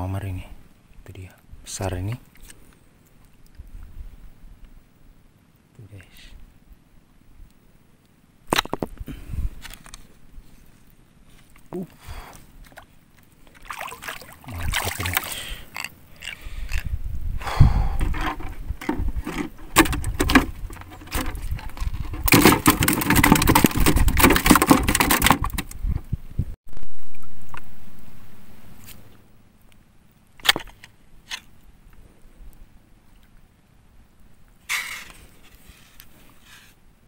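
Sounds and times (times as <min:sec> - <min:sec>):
shallow water splashing: 0:12.6 - 0:16.4.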